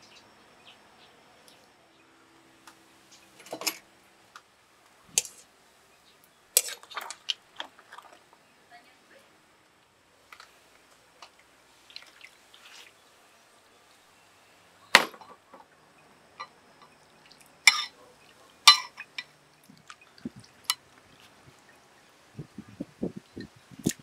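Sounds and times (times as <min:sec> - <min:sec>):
water dripping and splashing: 0:06.6 - 0:08.4, 0:11.2 - 0:13.0, 0:16.8 - 0:21.7
metal tongs clinking on ceramic bowl: 0:17.7 - 0:18.0, 0:18.7 - 0:19.3.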